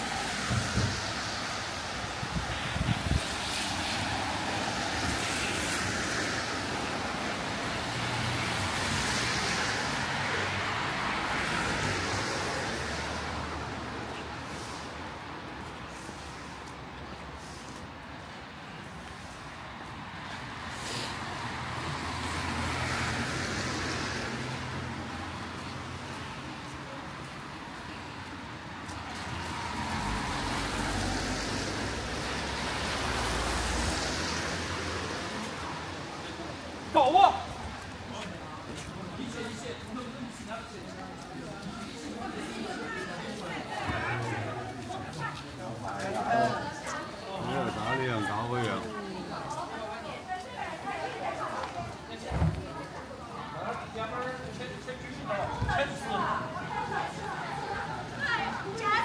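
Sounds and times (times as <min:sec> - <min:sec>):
tyre hiss on wet road: 0:00.0 - 0:26.8, 0:28.8 - 0:36.4.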